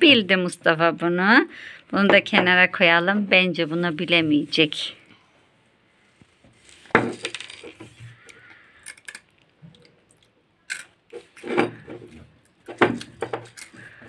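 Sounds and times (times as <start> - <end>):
cereal rattling in ceramic bowl: 7.0 - 7.9.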